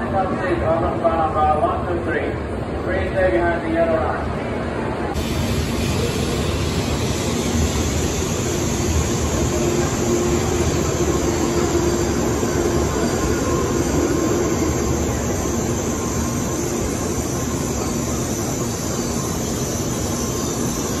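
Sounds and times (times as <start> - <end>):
train wheels rumbling: 5.1 - 21.0.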